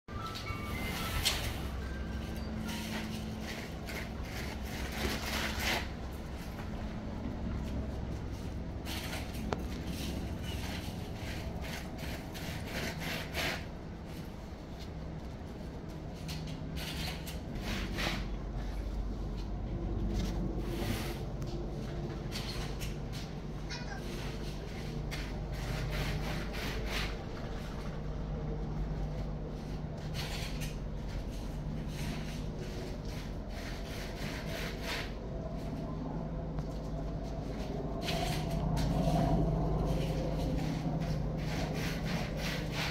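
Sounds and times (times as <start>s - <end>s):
steady low hum: 0.1s - 42.9s
scratchy rustling: 0.9s - 6.6s, 8.3s - 14.9s, 37.3s - 42.9s
rasping rubbing strokes: 8.9s - 13.8s, 23.7s - 27.8s, 29.6s - 35.7s, 37.5s - 42.9s.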